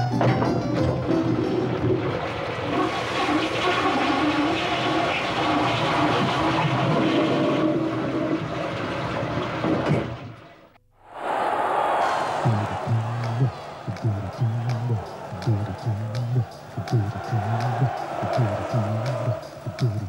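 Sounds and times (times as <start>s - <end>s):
toilet flushing: 0.8s - 10.5s.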